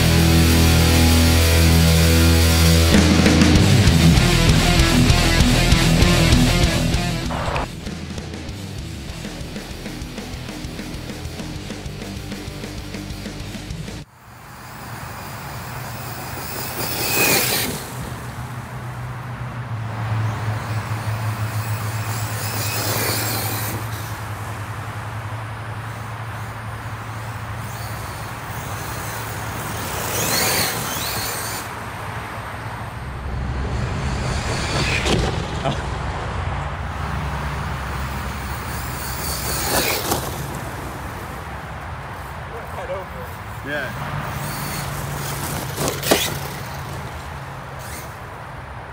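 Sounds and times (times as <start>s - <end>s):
steady low drone: 0.0s - 14.0s, 32.6s - 38.8s
rc cars whining past: 0.0s - 48.9s.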